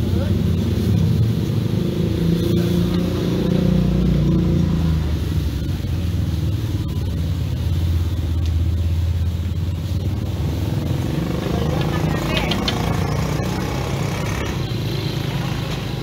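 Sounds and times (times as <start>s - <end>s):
motorcycle engines rumbling: 0.0s - 16.0s.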